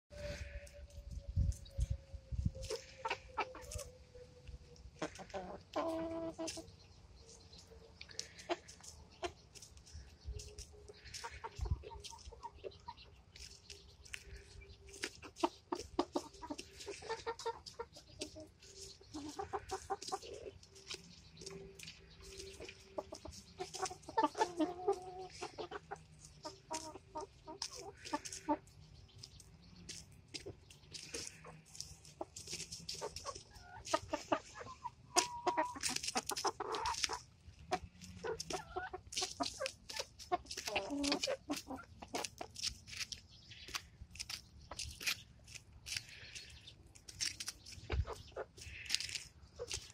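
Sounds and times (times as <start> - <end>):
hens clucking: 0.1 - 49.9
sharp pecks on cabbage leaves: 38.0 - 49.9.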